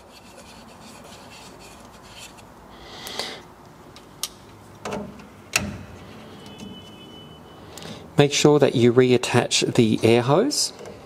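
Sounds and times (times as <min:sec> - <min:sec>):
soft rubbing: 0:00.0 - 0:02.5.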